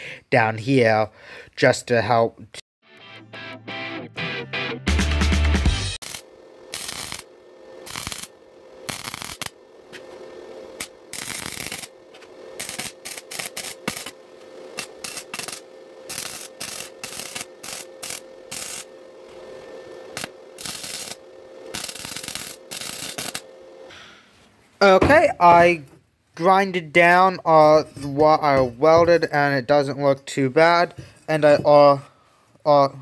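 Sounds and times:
welder arc crackling: 5.9s - 23.9s
steady hum: 6.0s - 32.5s.

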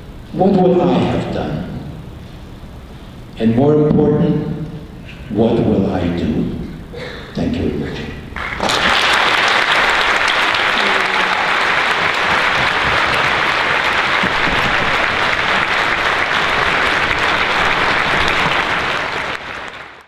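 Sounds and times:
large audience applauding: 8.4s - 20.0s.

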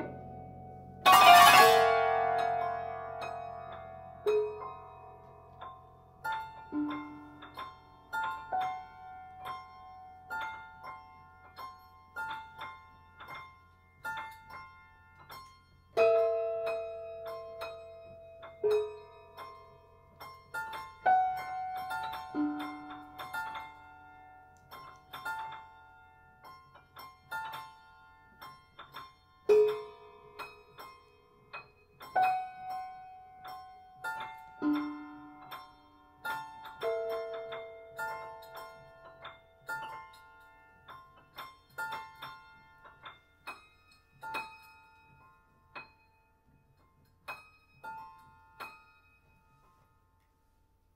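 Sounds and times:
piano single notes: 0.0s - 11.2s.

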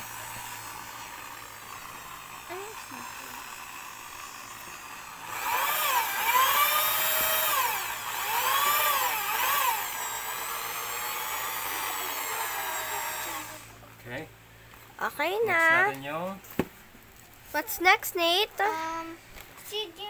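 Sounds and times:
electric drill mixing liquid: 0.0s - 13.8s.

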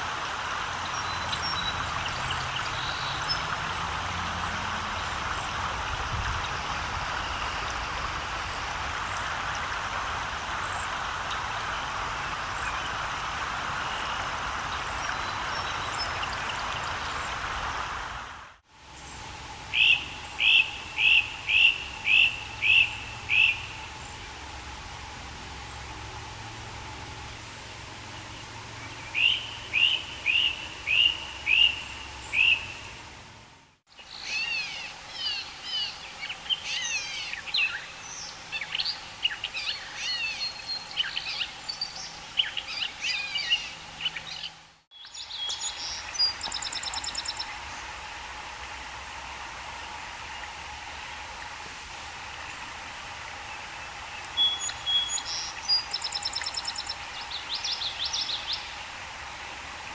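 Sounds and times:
steady background hiss: 0.0s - 59.9s
songbirds singing: 0.7s - 9.6s, 10.4s - 17.4s, 19.0s - 24.4s, 27.2s - 33.0s, 33.9s - 48.0s, 53.4s - 59.0s.

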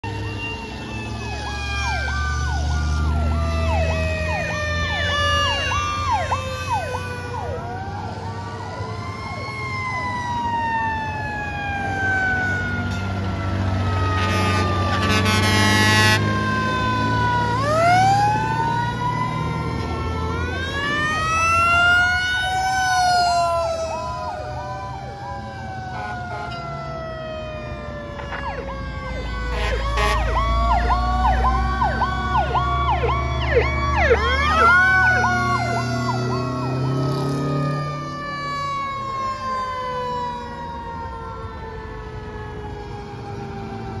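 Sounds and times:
fast rising and falling siren: 0.0s - 44.0s
fire truck sirens winding: 0.0s - 44.0s
truck engines rumbling: 0.0s - 44.0s
horn: 14.1s - 16.2s, 29.5s - 30.4s.

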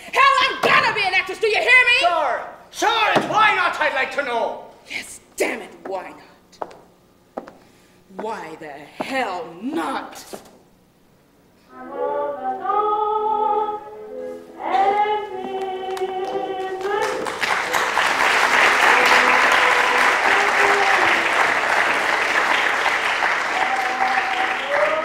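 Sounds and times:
people singing: 11.7s - 21.3s
audience applause: 15.9s - 25.0s.

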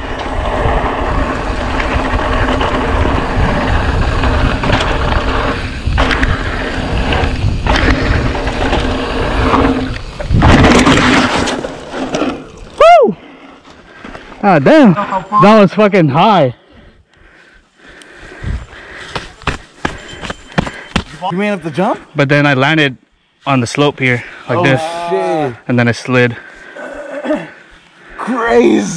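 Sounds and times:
wind buffeting microphone: 0.0s - 11.2s, 18.2s - 20.6s
bike tyres rumbling over dirt: 0.0s - 14.7s.

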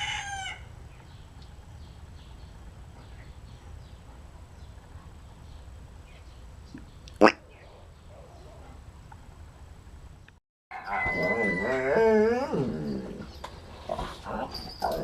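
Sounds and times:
dogs scuffling and grunting: 12.6s - 15.0s.

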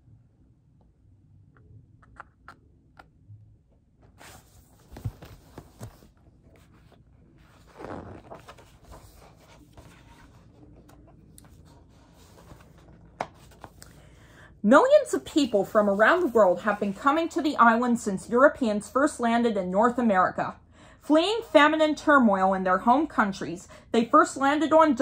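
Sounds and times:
book pages rustling: 4.0s - 14.0s, 15.4s - 17.1s.

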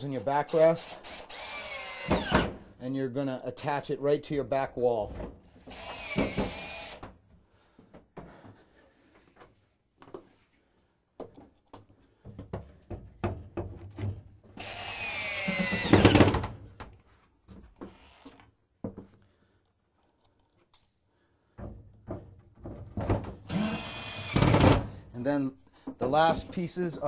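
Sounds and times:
power drill driving screws: 0.4s - 2.6s, 5.6s - 7.0s, 14.6s - 16.4s, 17.8s - 18.4s, 23.5s - 24.9s
knocks and clatter of wood: 11.2s - 14.3s, 21.5s - 23.5s.

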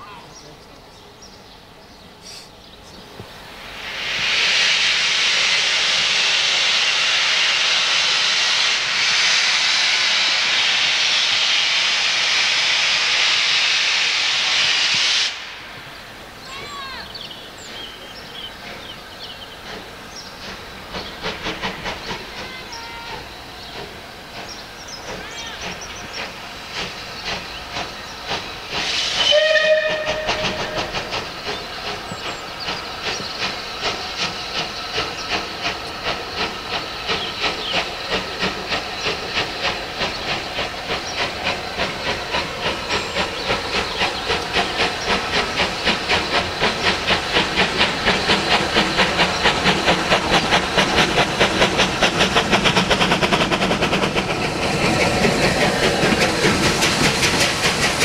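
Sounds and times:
steam locomotive exhaust beats: 1.3s - 58.0s
steam hissing: 2.2s - 58.0s
steam locomotive whistle: 28.9s - 31.0s.

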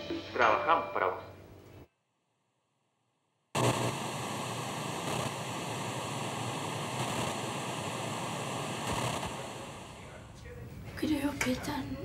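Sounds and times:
television static hiss: 3.6s - 12.0s.

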